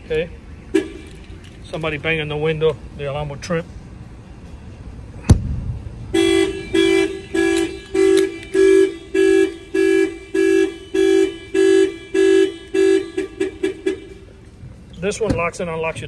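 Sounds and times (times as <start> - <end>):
car alarm horn honks: 0.7 - 1.3, 6.1 - 14.3.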